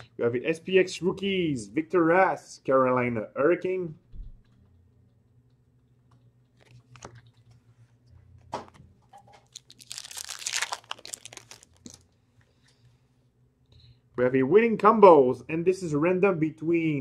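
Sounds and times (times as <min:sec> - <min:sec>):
packaging crinkling rustle: 0:09.1 - 0:12.2.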